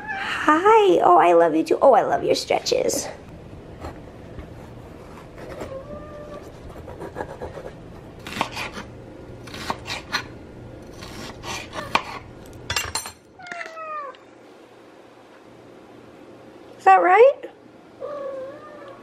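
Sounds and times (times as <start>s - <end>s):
cat meowing: 5.6s - 6.5s, 13.4s - 14.2s, 18.0s - 19.0s
knife slicing pepper on cutting board: 6.7s - 10.3s, 10.9s - 12.2s.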